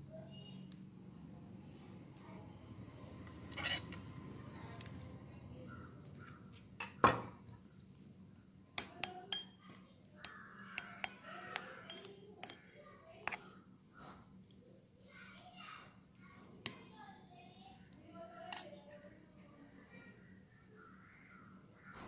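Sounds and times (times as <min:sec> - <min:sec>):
spoon stirring in glass bowl: 0:03.2 - 0:04.1, 0:08.8 - 0:13.6, 0:18.3 - 0:19.1
spoon clinking against glass: 0:09.0 - 0:09.6, 0:11.5 - 0:12.6, 0:18.5 - 0:18.7.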